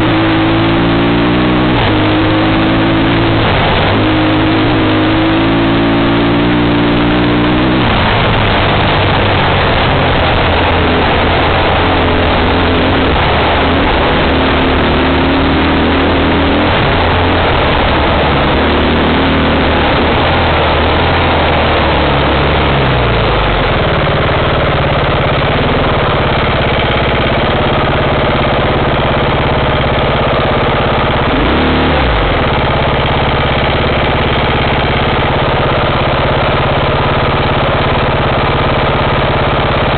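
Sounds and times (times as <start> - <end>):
wind noise: 0.0 - 24.2
off-road vehicle engine: 0.0 - 39.9
vehicle rattling: 0.0 - 39.9.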